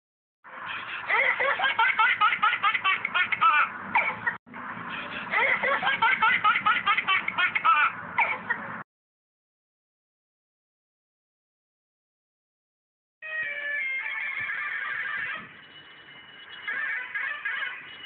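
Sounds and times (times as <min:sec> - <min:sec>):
babies laughing and giggling: 0:00.7 - 0:04.4, 0:05.2 - 0:08.8, 0:16.7 - 0:18.0.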